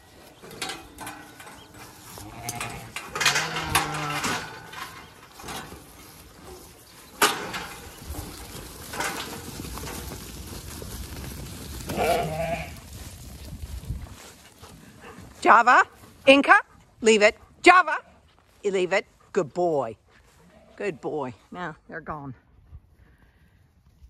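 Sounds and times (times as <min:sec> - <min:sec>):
gate rattling: 0:00.3 - 0:10.0
metal gate clanking: 0:00.4 - 0:05.8
sheep bleating: 0:02.2 - 0:04.3, 0:11.9 - 0:12.8.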